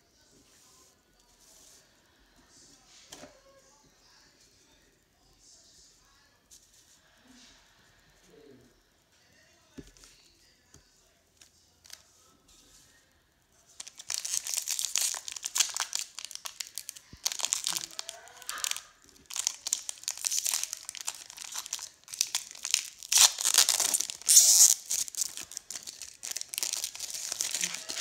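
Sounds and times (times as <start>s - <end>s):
foil wrapper crinkling: 13.8s - 28.0s.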